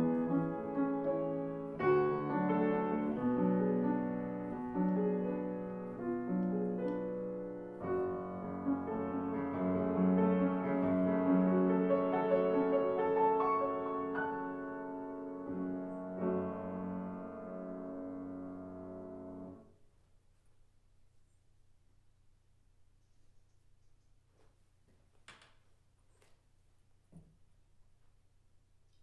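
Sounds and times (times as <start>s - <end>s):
classical grand piano: 0.0s - 19.8s.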